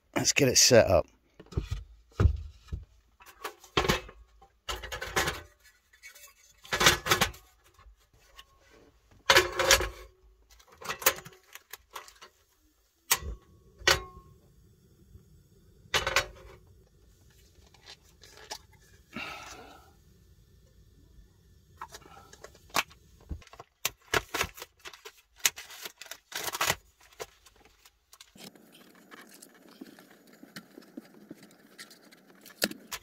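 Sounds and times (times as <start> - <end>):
cooking gear clattering: 15.9 - 16.7.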